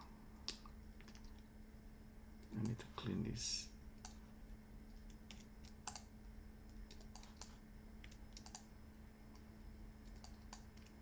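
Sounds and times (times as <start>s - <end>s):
steady low hum: 0.0s - 11.0s
computer keyboard clicks: 6.7s - 8.7s, 10.0s - 11.0s.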